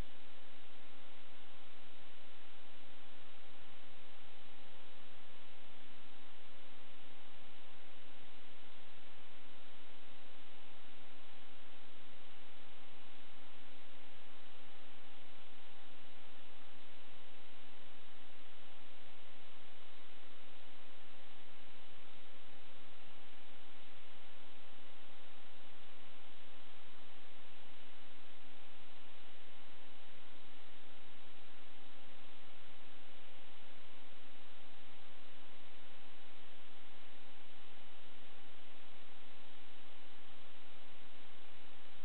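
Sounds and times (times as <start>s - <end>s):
electrical hum: 0.0s - 42.0s
steady hiss: 0.0s - 42.0s.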